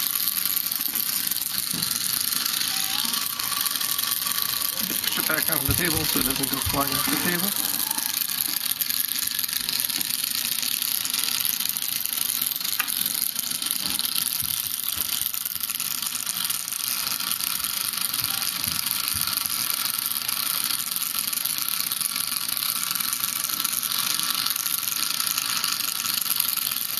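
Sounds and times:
vibrobot buzzing: 0.0s - 19.4s.

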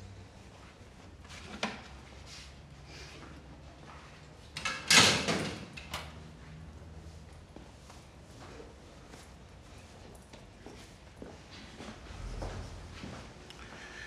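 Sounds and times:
metal locker door clanking: 4.6s - 6.1s.

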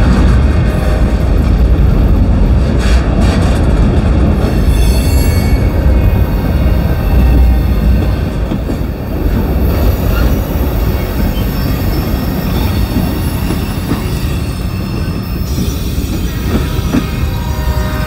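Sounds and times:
train wheels rumbling on rails: 0.0s - 18.0s
high wheel squealing: 9.6s - 18.0s.

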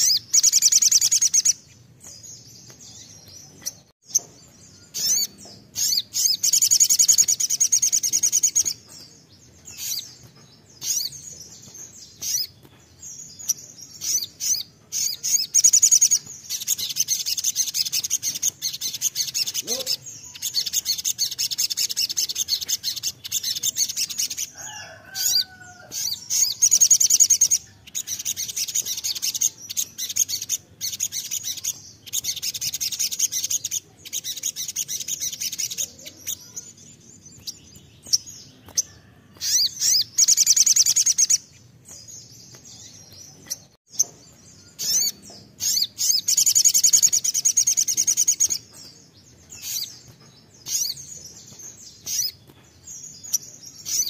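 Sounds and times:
bird chattering trill: 4.9s - 8.8s, 14.0s - 24.5s.

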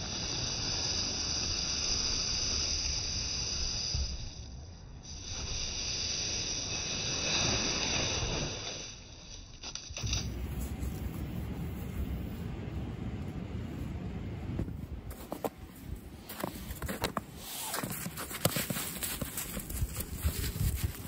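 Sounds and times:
brush sweeping snow: 5.4s - 9.1s, 10.0s - 21.0s.

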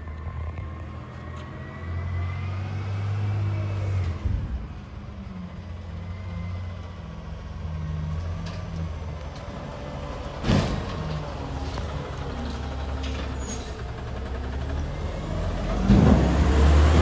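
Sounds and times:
garbage truck engine running: 9.6s - 17.0s.

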